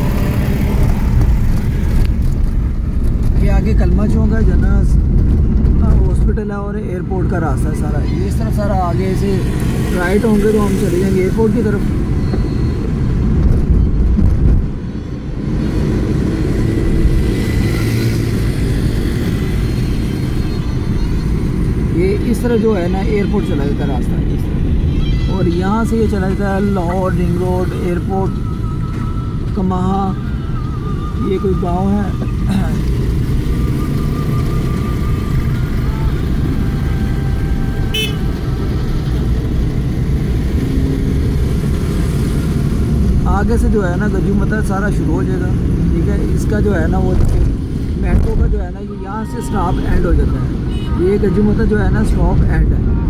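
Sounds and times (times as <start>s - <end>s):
surrounding traffic: 0.0s - 53.0s
vehicle engine and tyres rumbling: 0.0s - 53.0s
short horn toot: 37.9s - 38.3s.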